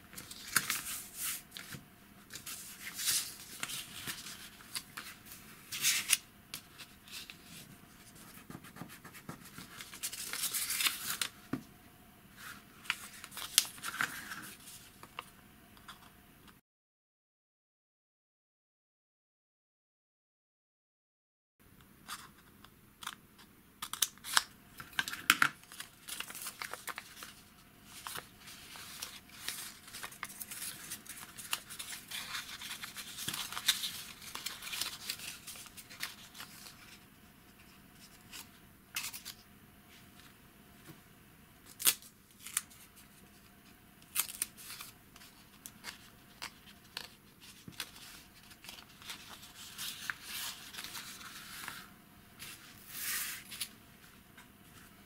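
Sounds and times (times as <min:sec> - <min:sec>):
paper rustling and folding: 0:00.0 - 0:11.6, 0:12.3 - 0:15.3, 0:23.9 - 0:39.4, 0:41.7 - 0:54.9
paper crackles and clicks: 0:00.1 - 0:07.4, 0:23.8 - 0:37.0, 0:44.0 - 0:51.8.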